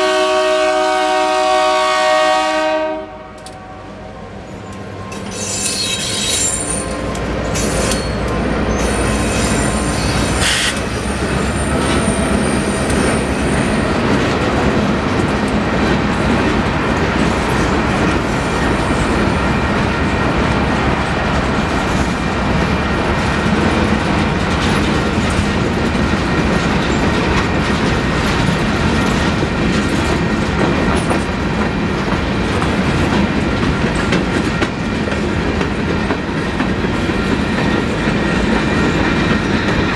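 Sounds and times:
diesel locomotive rumbling: 0.0 - 39.9
train wheels on rails: 4.3 - 39.9
thin high squeal: 4.6 - 10.7
wheels clacking over rail joints: 4.7 - 39.9.

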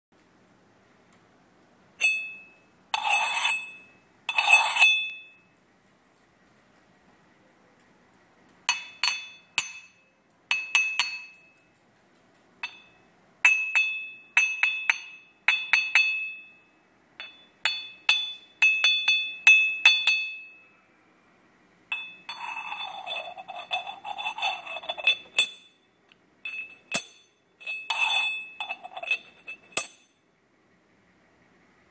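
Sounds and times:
clay lid clinking on teapot rim: 21.9 - 25.8, 26.5 - 30.1
lid scraping around teapot opening: 22.3 - 25.5, 27.6 - 29.8.

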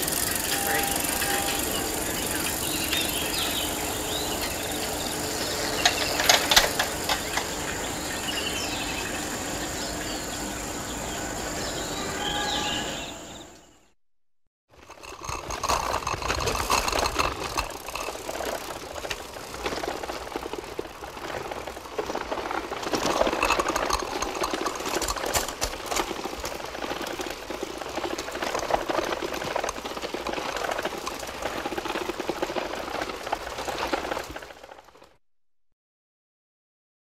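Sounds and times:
bicycle mechanism clicking and rattling: 0.0 - 7.9, 14.8 - 34.8.

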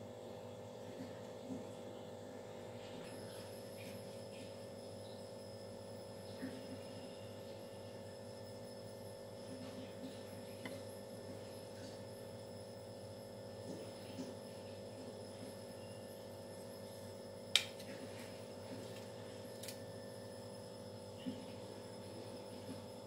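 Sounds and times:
electrical hum: 0.0 - 23.0.

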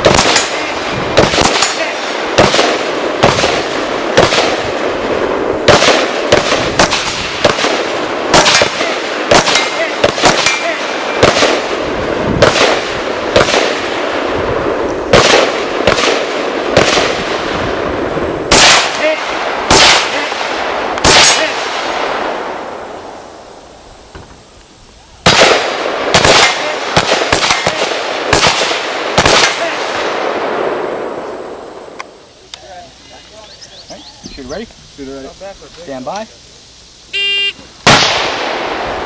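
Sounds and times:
rifle shots hitting steel targets: 0.0 - 4.9, 5.6 - 11.8.

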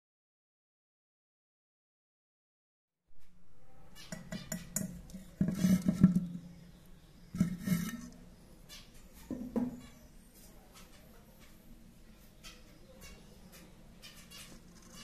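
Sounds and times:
scratching in nesting material: 5.1 - 6.5, 7.3 - 8.2.

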